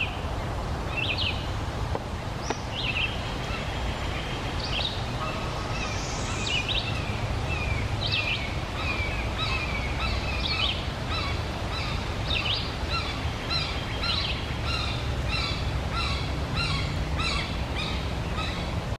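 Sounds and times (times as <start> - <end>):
sweeping bird calls: 0.0 - 1.6, 2.2 - 18.9
small birds chirping: 0.0 - 18.9.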